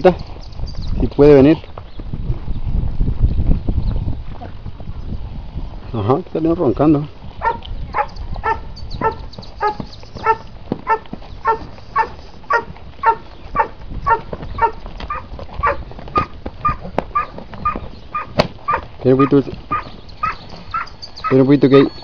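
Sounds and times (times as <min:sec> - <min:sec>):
dog barking: 0:07.4 - 0:21.9.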